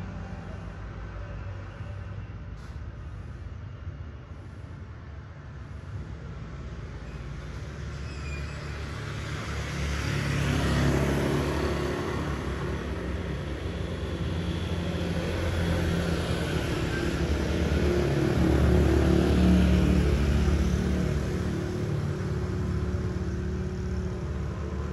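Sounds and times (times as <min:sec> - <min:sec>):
street traffic engine hum: 0:00.0 - 0:24.9
motorbike passing: 0:08.7 - 0:24.9
vehicle passing: 0:08.8 - 0:24.9.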